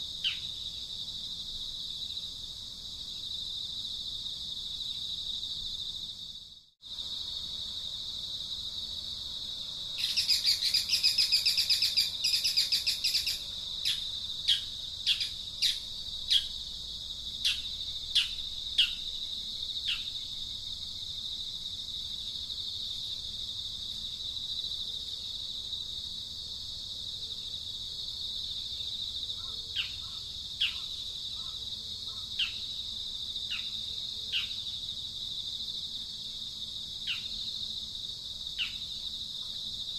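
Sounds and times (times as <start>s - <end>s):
high-pitched insect drone: 9.9s - 21.3s.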